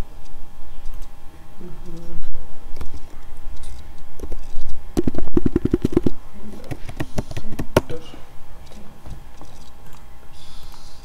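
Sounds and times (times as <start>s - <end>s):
computer keyboard typing: 4.6s - 7.8s.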